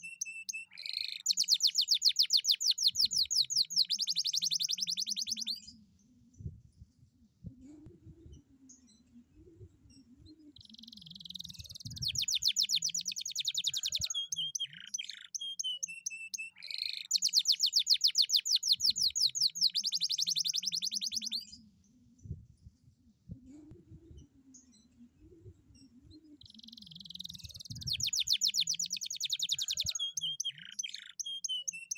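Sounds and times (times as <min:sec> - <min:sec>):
canary singing: 0:00.0 - 0:05.7, 0:10.5 - 0:21.6, 0:26.1 - 0:31.9.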